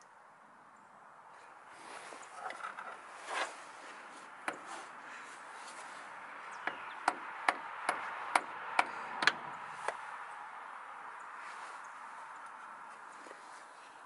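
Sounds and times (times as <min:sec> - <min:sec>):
hammer tapping on metal: 0:06.6 - 0:09.4.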